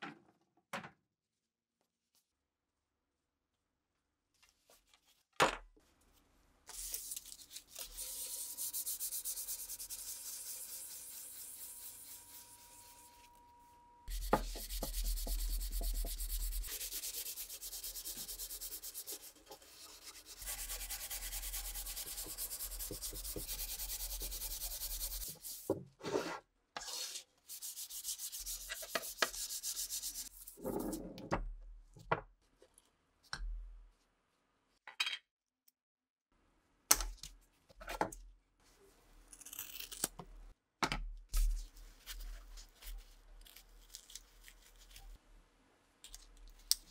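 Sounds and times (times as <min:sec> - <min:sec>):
sandpaper rasping on wood: 0:07.8 - 0:13.3, 0:14.1 - 0:25.7, 0:26.9 - 0:30.4.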